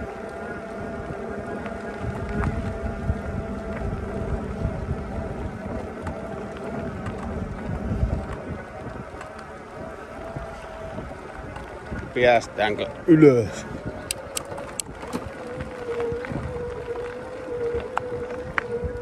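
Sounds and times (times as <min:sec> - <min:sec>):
electric bike motor humming: 0:00.0 - 0:19.0
tyres on gravel: 0:00.0 - 0:19.0
wind buffeting microphone: 0:00.0 - 0:19.0.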